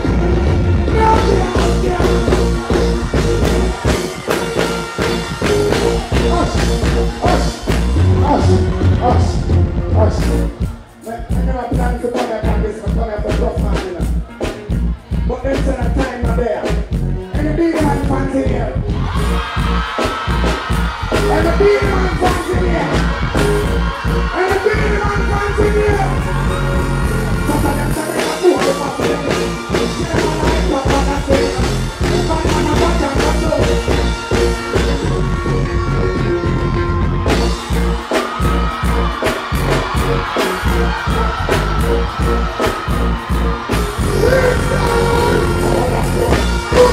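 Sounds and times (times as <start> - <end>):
dancehall music with heavy bass: 0.0 - 46.9
person singing into a microphone: 27.4 - 33.8, 44.1 - 46.9.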